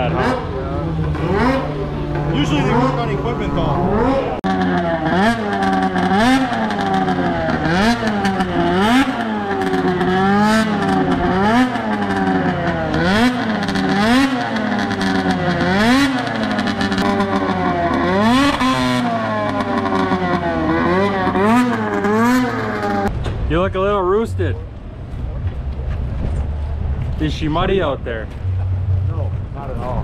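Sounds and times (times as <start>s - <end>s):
snowmobile engine revving: 0.0s - 23.1s.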